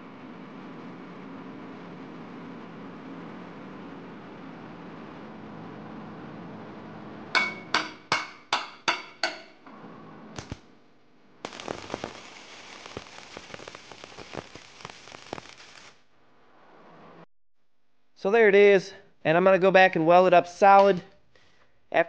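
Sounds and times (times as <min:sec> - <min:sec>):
ringing knocks on metal: 0:07.4 - 0:09.5
welding arc crackling and sizzling: 0:10.3 - 0:10.8, 0:11.4 - 0:17.3.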